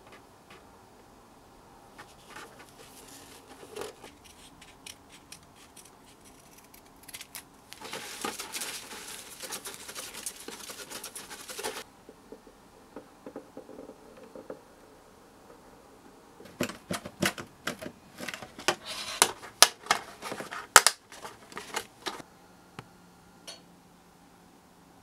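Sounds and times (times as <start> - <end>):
tissue rubbing on plastic: 7.8 - 11.8.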